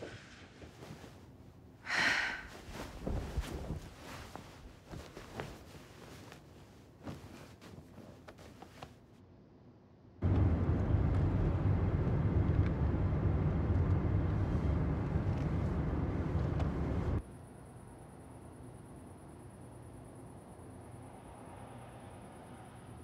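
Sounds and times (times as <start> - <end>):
car interior rumble: 10.2 - 17.2.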